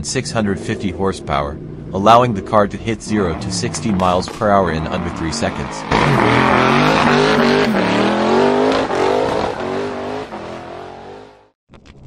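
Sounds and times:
tyres screeching: 0:02.3 - 0:11.2
car engine revving hard: 0:03.1 - 0:11.5.

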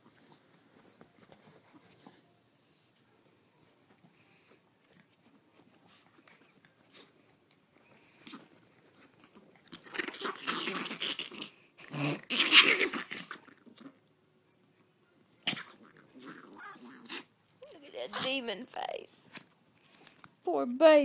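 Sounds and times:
faint rustling: 0:00.0 - 0:09.6
dogs snarling and snapping: 0:04.9 - 0:14.1, 0:15.4 - 0:17.3.

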